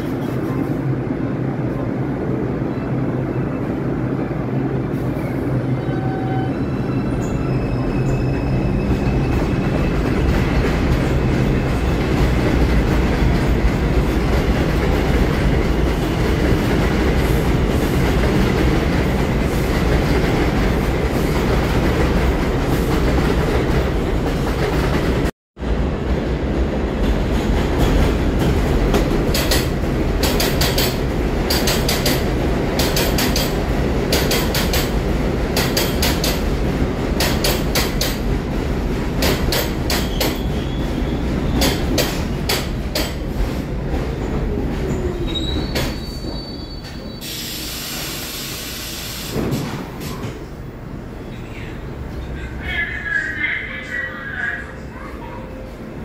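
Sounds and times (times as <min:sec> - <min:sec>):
train rumble on far track: 0:00.0 - 0:56.0
train wheels clacking over rail joints: 0:27.1 - 0:36.5, 0:37.1 - 0:38.3, 0:39.1 - 0:40.6, 0:41.5 - 0:44.2.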